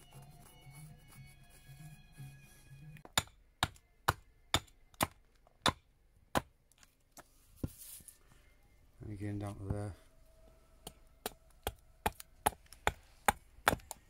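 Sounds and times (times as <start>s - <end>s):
faint music: 0.0s - 6.2s, 6.9s - 13.2s
axe chopping wood: 3.0s - 6.5s, 11.2s - 14.0s.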